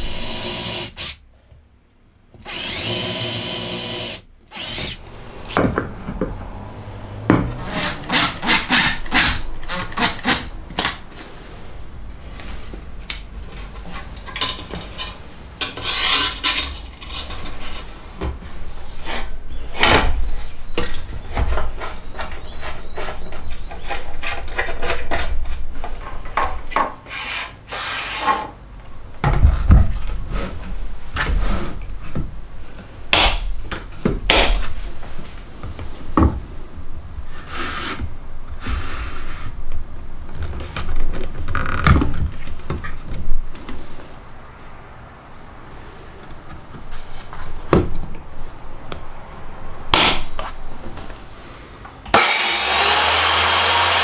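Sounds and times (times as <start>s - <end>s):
wood and metal scraping: 4.6s - 12.8s, 13.4s - 28.6s.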